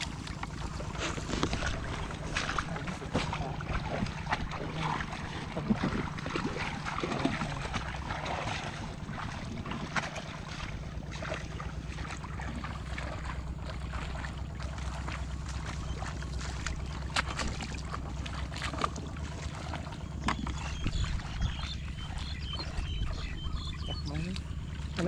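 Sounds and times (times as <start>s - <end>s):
sloshing steps in shallow water: 0.0s - 25.0s
steady low hum: 0.0s - 25.0s
wind buffeting microphone: 20.4s - 24.3s.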